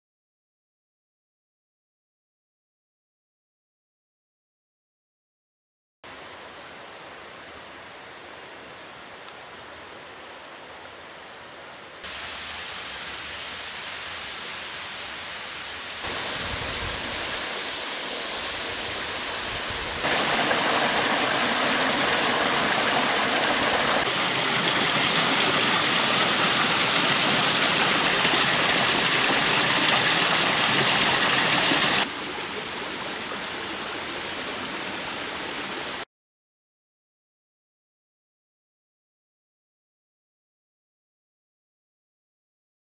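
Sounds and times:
rushing mountain stream: 12.0s - 36.0s.

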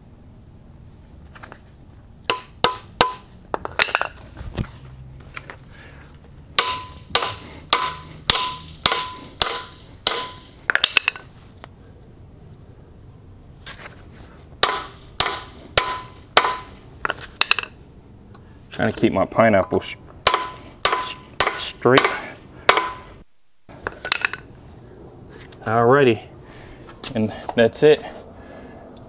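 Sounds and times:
hammer striking metal: 2.3s - 4.1s, 6.6s - 11.2s, 14.6s - 16.8s, 19.6s - 23.2s.

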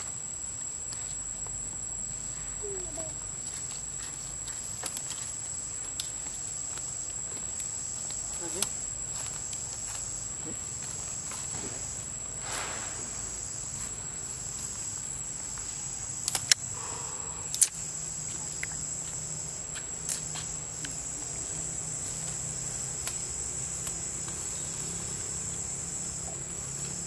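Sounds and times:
insects droning: 0.0s - 27.0s
sharp clicks: 16.2s - 16.7s, 17.5s - 17.8s.

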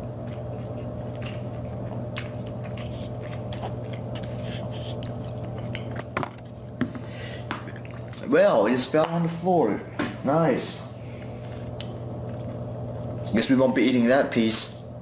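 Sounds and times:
person chewing: 0.0s - 8.3s, 11.1s - 13.4s
steady low hum: 0.0s - 15.0s.

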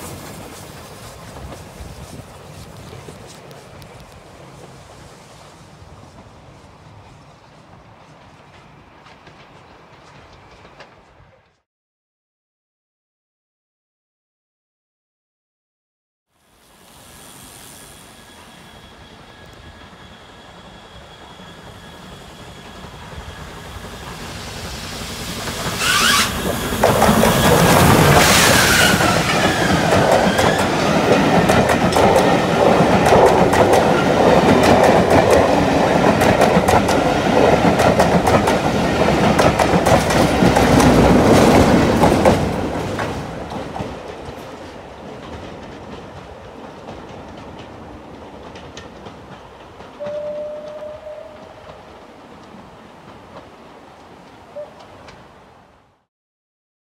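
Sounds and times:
steam hiss: 0.0s - 8.5s, 16.4s - 44.8s
steam locomotive passing: 0.0s - 11.6s, 16.3s - 56.1s
wheels clicking over rail joints: 25.4s - 55.3s
short faint tone: 50.0s - 51.7s.

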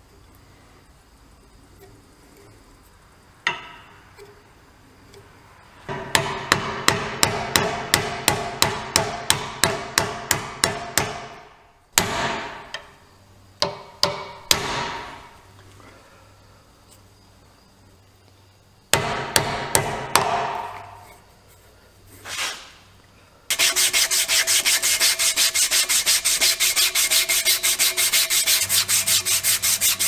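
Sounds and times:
hammer striking steel punch: 5.9s - 11.4s, 12.0s - 12.8s, 13.6s - 15.2s, 18.9s - 21.0s.

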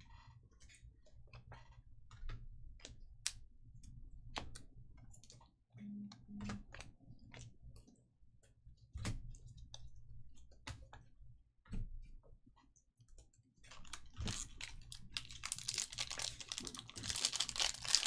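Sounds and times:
low steady hum: 0.0s - 12.2s.

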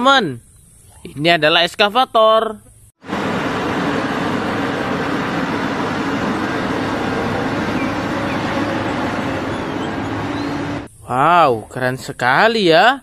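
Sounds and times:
excavator diesel engine hum: 3.0s - 10.9s
steady rushing noise: 3.0s - 10.9s.

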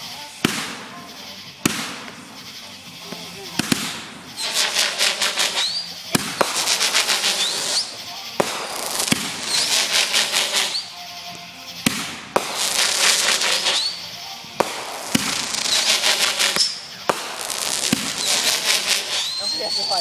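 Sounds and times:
crackling firework stars: 0.0s - 20.0s
firework bangs: 0.0s - 20.0s
short rising whistle: 4.3s - 6.0s, 6.9s - 8.0s, 9.4s - 10.9s, 13.3s - 14.1s, 18.2s - 20.0s.

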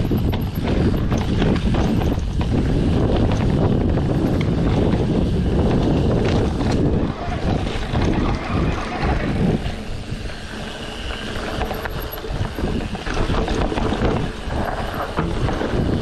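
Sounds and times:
bike rumbling over rough ground: 0.0s - 16.0s
wind buffeting microphone: 0.0s - 16.0s
bike knocks on rough ground: 13.1s - 16.0s.

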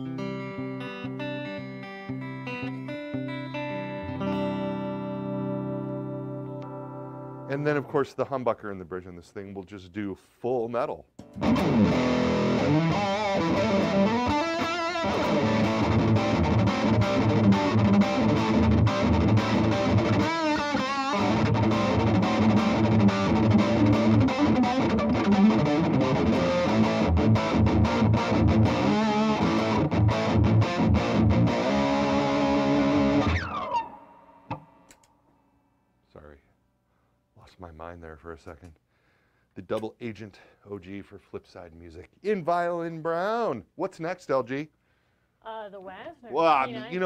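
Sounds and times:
distorted electric guitar riffing: 0.0s - 8.1s, 11.4s - 34.6s.

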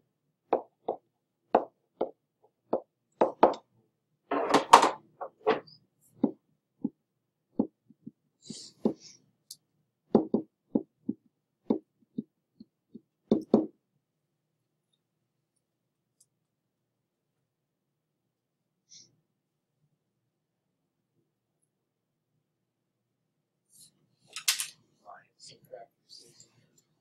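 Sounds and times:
pen tapping on writing surface: 1.6s - 3.6s, 6.2s - 7.0s, 7.6s - 8.2s, 10.1s - 13.7s.

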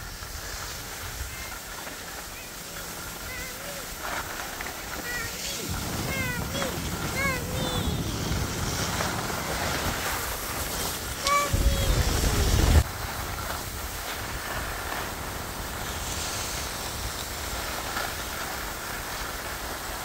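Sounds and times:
low wind rumble: 0.0s - 20.0s
skis hissing over snow: 0.0s - 20.0s
person calling out: 3.3s - 3.9s, 5.0s - 8.3s, 11.2s - 12.7s
wind rushing over microphone: 4.6s - 19.9s.

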